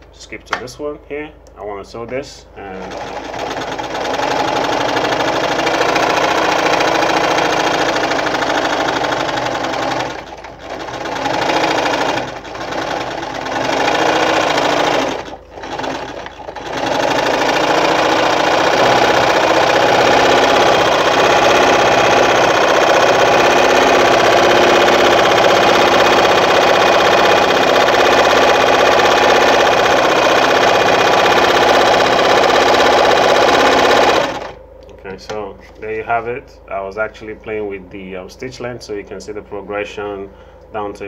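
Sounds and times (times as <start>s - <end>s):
electric sewing machine running: 2.7s - 34.6s.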